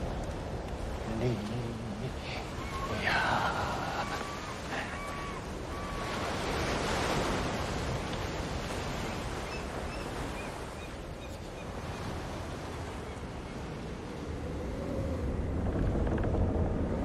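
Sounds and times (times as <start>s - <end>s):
wind: 0.0s - 17.0s.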